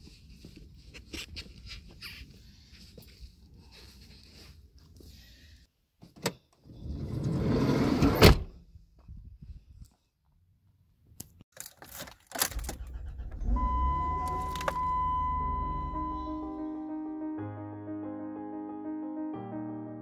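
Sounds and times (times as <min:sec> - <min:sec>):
keys rattling: 0:11.6 - 0:13.2
car engine starting and idling: 0:12.3 - 0:16.6
electronic warning tone: 0:13.3 - 0:16.8.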